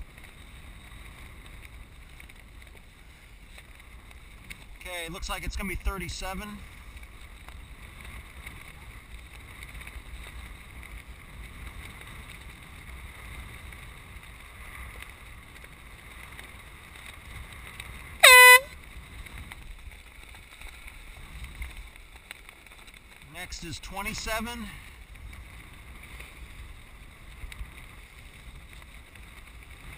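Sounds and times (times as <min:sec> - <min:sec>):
wind and water noise: 0:00.0 - 0:29.9
air horn blast: 0:18.2 - 0:18.7.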